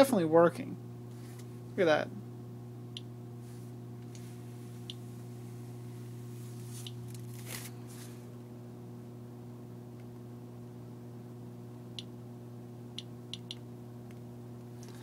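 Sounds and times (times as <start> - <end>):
low electrical hum: 0.0 - 15.0
rustle of foil: 6.5 - 8.2
geiger counter clicks: 13.0 - 13.6.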